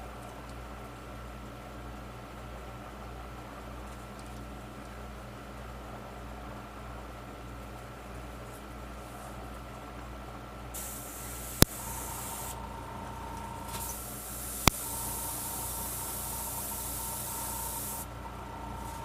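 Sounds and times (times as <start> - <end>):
airbrush spraying hiss: 10.8 - 12.7, 13.4 - 19.0
sharp clicks: 14.6 - 14.9.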